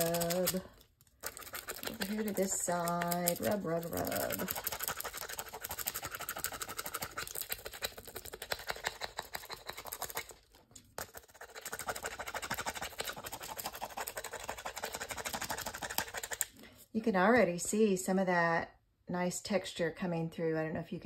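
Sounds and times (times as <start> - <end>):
wooden stick rubbing foil: 0.0 - 16.6.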